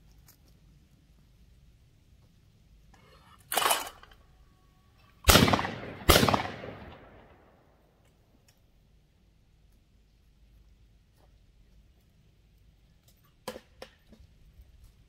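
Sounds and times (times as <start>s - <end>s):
shotgun shots: 5.2s - 7.5s.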